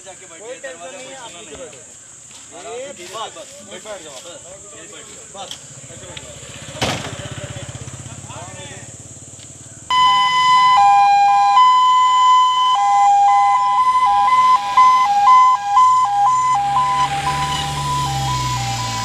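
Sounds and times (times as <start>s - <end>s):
vehicle engine rumbling: 5.0s - 19.0s
ambulance siren two-tone: 9.9s - 19.0s.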